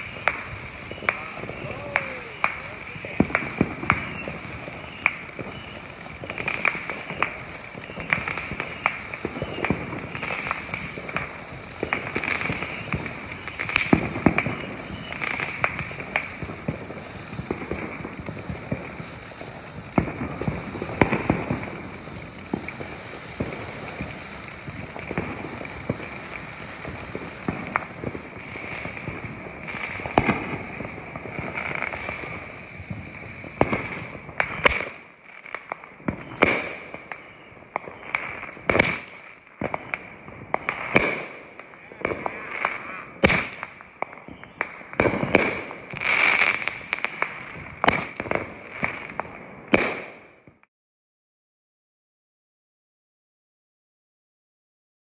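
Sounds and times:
sharp cracks: 0.0 - 16.8, 40.6 - 48.2
firework fountain hissing and crackling: 0.0 - 50.7
firework pops: 0.0 - 50.7.

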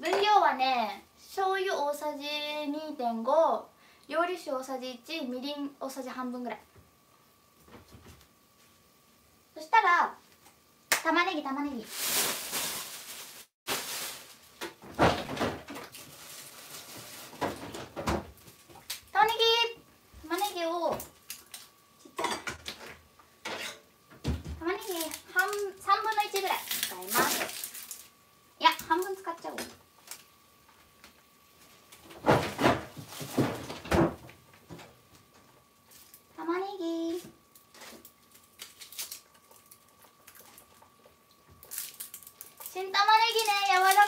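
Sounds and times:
rustles and knocks: 12.0 - 18.9, 31.6 - 36.1.

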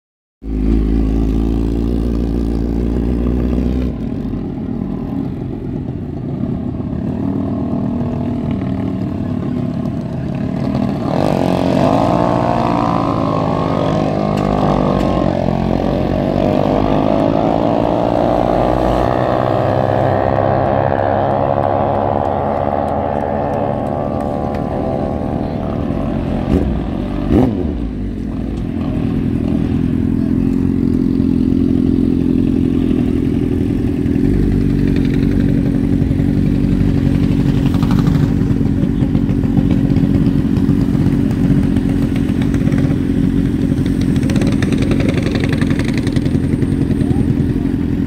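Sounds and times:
motorcycle engine revving: 0.4 - 48.0
motorcycle engine idling: 27.9 - 48.0.

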